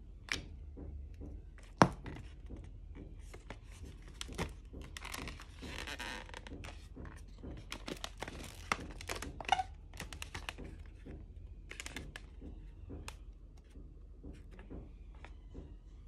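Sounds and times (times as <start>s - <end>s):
balloons squeaking and rubbing: 5.0s - 6.8s, 7.6s - 10.6s.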